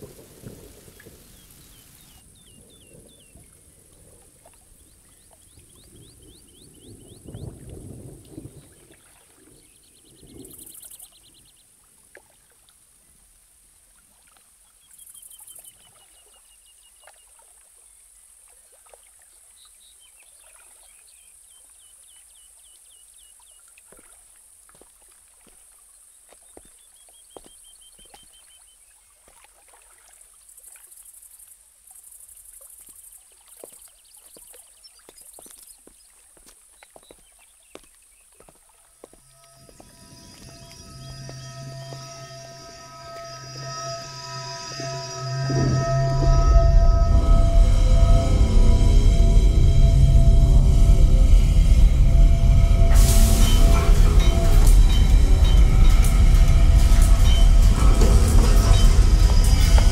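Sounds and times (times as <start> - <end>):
low watery rumble: 0.0 - 14.4, 38.6 - 59.9
trickling water: 0.0 - 41.4
steady hiss: 39.2 - 59.9.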